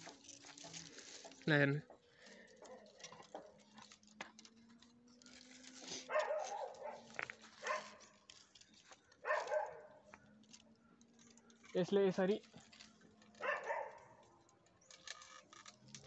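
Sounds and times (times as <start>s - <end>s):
dog barking: 6.0s - 8.1s, 9.2s - 10.0s, 13.4s - 14.2s.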